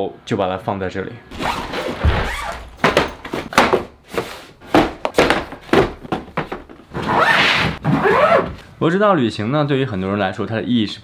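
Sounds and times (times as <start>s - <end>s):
box knocks and thuds: 1.3s - 6.9s.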